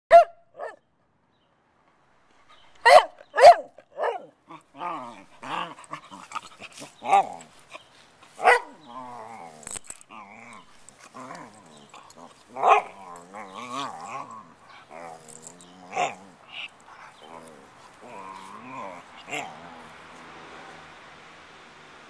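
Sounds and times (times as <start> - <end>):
puppy barking: 0.1 - 0.8, 2.8 - 7.4, 8.4 - 9.2, 10.5 - 20.0
puppy wavering vocal noises: 4.0 - 20.3.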